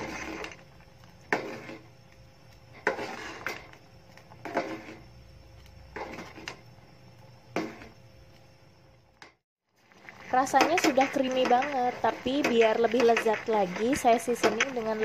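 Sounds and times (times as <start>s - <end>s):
spoon scraping a metal saucepan: 0.0s - 0.6s, 1.3s - 1.9s, 2.8s - 3.8s, 4.4s - 5.0s.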